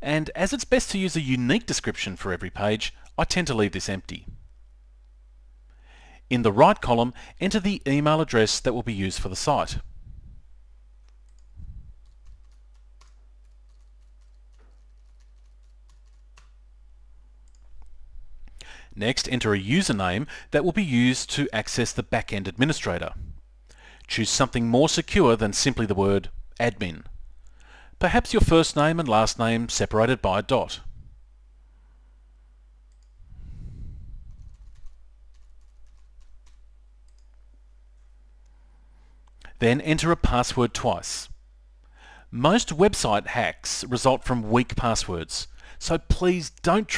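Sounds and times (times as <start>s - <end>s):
keyboard typing: 11.0s - 16.6s, 34.3s - 37.4s.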